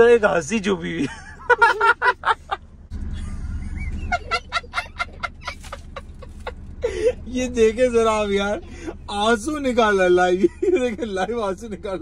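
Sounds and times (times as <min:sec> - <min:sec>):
car cabin rumble: 0:00.0 - 0:12.0
boy giggling: 0:03.2 - 0:07.3.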